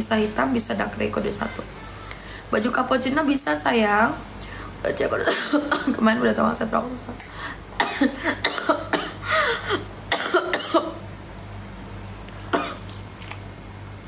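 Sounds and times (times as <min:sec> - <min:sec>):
steady low hum: 0:00.0 - 0:14.0
woman coughing: 0:05.2 - 0:06.0, 0:07.8 - 0:11.0, 0:12.5 - 0:12.8.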